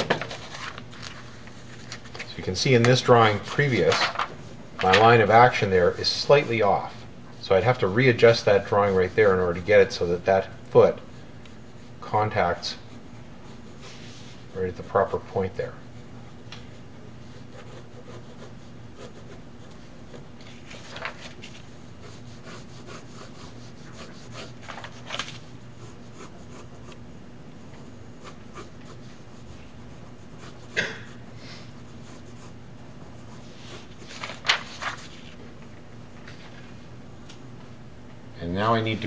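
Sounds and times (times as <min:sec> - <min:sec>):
paper sheets flipping: 0:00.0 - 0:05.2, 0:20.4 - 0:21.7, 0:24.5 - 0:25.5, 0:33.6 - 0:36.7
pencil scratching on paper: 0:11.1 - 0:20.3, 0:21.5 - 0:30.8, 0:31.6 - 0:35.2.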